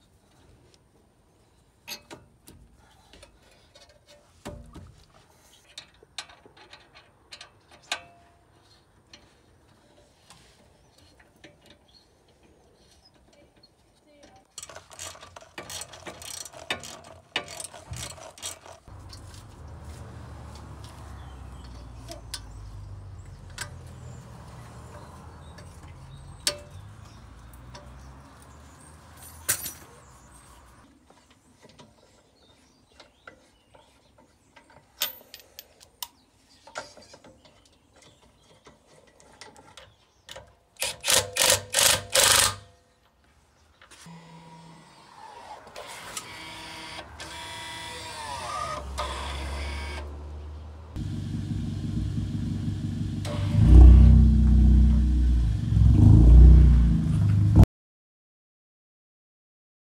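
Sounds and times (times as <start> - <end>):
low rumble: 51.0 - 57.6.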